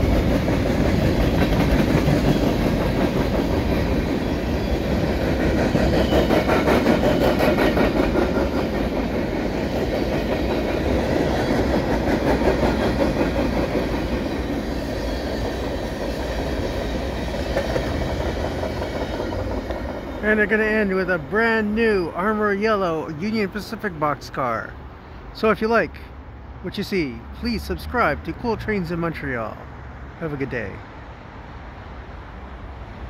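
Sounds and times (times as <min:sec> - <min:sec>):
train wheels clattering on rails: 0:00.0 - 0:21.3.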